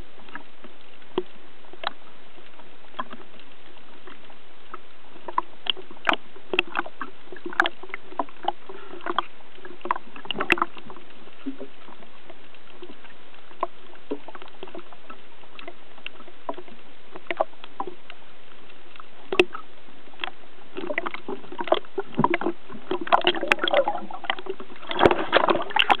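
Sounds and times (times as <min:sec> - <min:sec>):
underwater clicks and knocks: 0:00.2 - 0:26.0.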